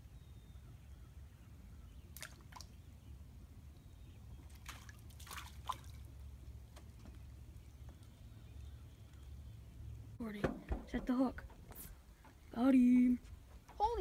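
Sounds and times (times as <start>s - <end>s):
water dripping and splashing: 2.2s - 2.8s, 4.5s - 8.2s.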